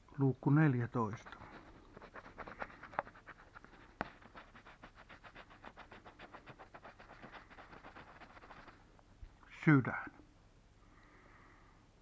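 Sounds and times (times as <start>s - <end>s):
scratching scratch-off ticket: 1.1s - 8.9s.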